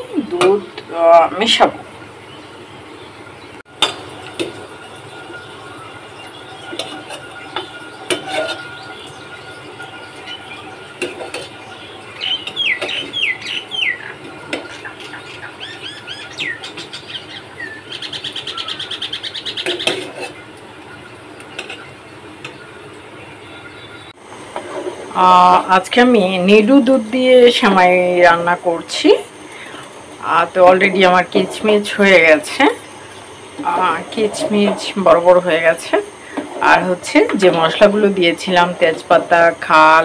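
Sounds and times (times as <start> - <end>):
birds chirping: 1.1 - 24.2
metal ladle scraping steel pot: 6.6 - 12.6, 19.6 - 20.4, 33.7 - 35.2.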